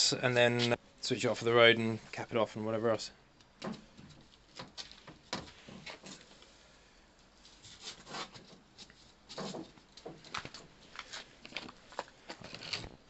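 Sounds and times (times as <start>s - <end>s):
plastic pipe knocking and scraping: 9.3s - 10.7s.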